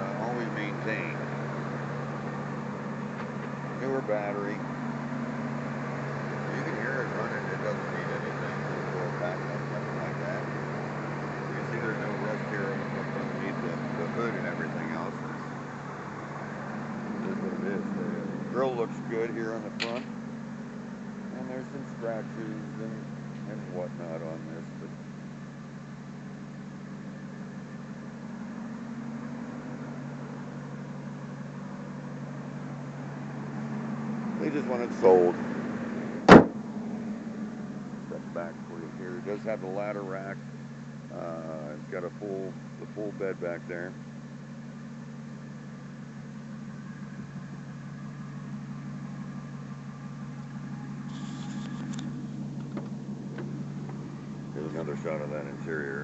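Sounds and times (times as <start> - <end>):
truck engine idling: 0.0 - 56.0.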